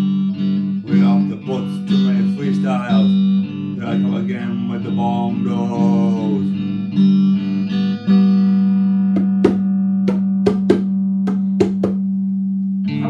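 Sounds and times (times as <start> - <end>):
hand drum slaps: 9.1 - 12.1.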